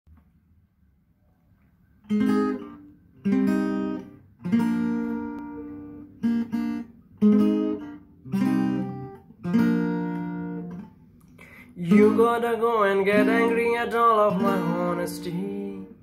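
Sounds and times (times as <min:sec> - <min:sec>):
acoustic guitar strummed chords: 0:02.1 - 0:16.0.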